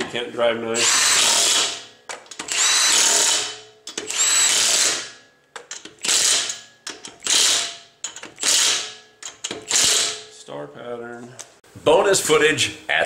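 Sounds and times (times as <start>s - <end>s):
impact wrench bursts: 0.8s - 10.3s.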